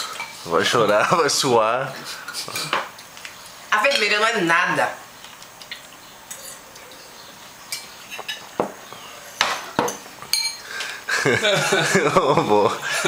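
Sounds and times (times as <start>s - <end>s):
cutlery clinking on plates: 2.1s - 3.2s, 3.8s - 4.2s, 5.5s - 7.1s, 7.7s - 8.8s, 9.4s - 11.0s.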